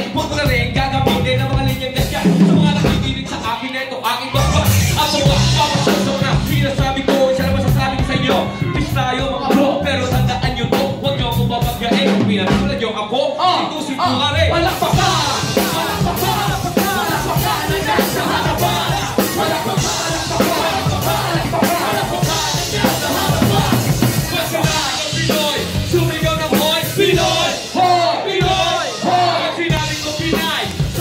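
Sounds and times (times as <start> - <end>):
live band playing loud music: 0.0 - 12.8, 14.0 - 31.0
rapper's voice through pa: 0.0 - 31.0
drum hits: 14.8 - 27.5.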